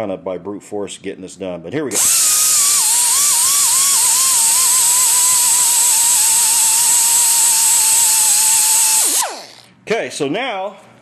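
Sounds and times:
die grinder cutting steel: 2.0 - 9.7.

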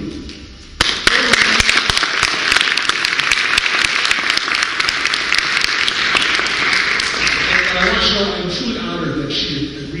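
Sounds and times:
audience applauding: 0.8 - 8.4.

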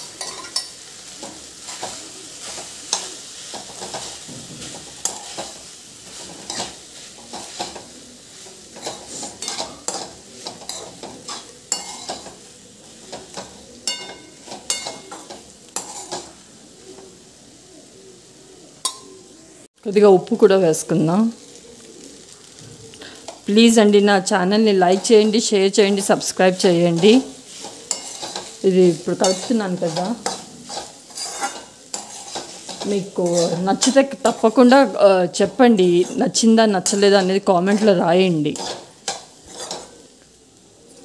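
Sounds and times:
metal ladle scraping a pan: 0.0 - 16.4, 24.9 - 40.2
light sizzle: 0.0 - 41.0.

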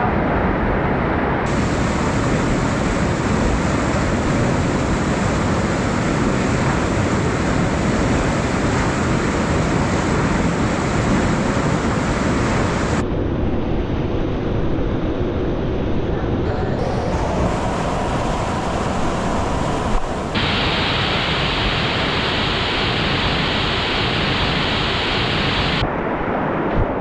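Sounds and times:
whitewater rushing over rocks: 1.5 - 13.0, 16.8 - 25.8.

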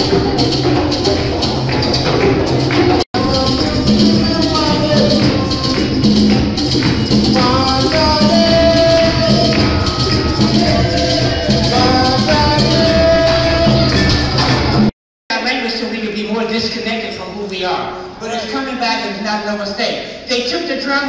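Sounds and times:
drum ensemble playing: 0.0 - 14.9
shaker percussion: 0.0 - 14.9.

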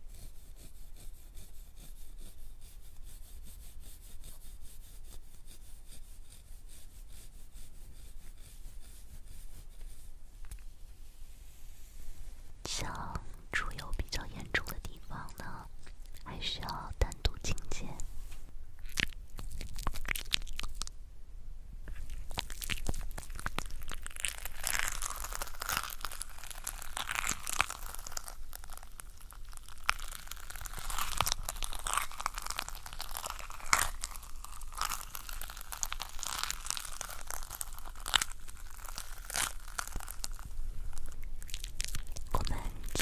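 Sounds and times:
sticky gel crackles and clicks: 18.8 - 21.0, 21.9 - 43.0.

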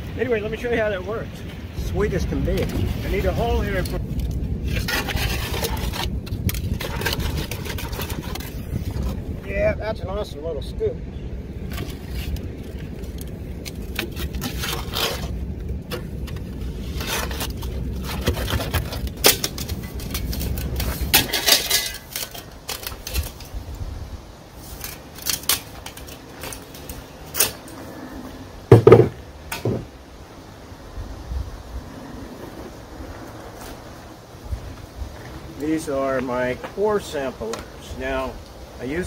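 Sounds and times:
low wind rumble: 0.0 - 39.0
metal scoop scraping stony soil: 1.9 - 4.0, 4.6 - 9.2, 11.7 - 12.7, 13.7 - 23.6, 24.5 - 28.1
metal clinks and knocks: 18.0 - 23.5, 24.8 - 27.8, 28.7 - 29.8.

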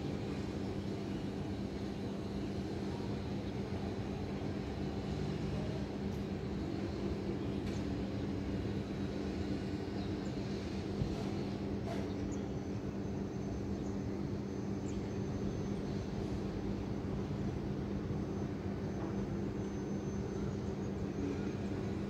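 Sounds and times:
constant low hum: 0.0 - 22.0.

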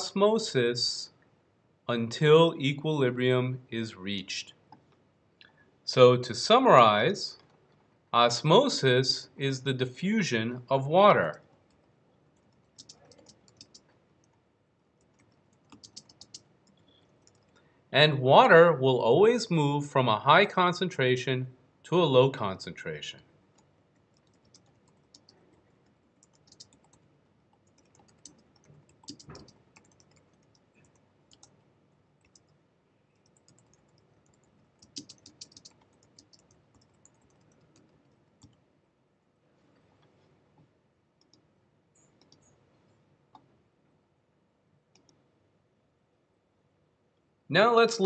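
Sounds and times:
typing on keyboard: 11.2 - 14.4, 15.0 - 17.6, 23.6 - 31.6, 32.2 - 32.6, 33.2 - 38.6.

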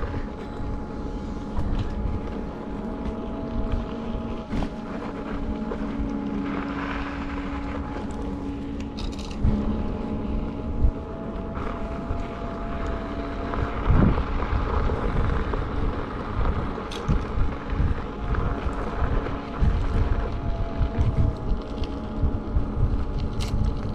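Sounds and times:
hub motor whine: 0.0 - 23.9
wind on microphone: 0.0 - 23.9
tyres rolling over gravel: 1.6 - 10.3.

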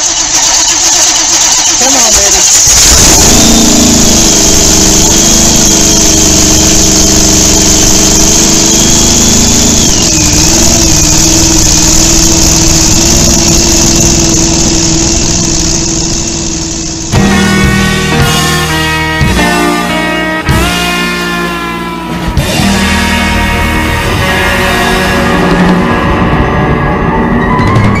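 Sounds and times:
motorcycle engine idling: 0.0 - 17.8
faint whine: 0.0 - 28.0.

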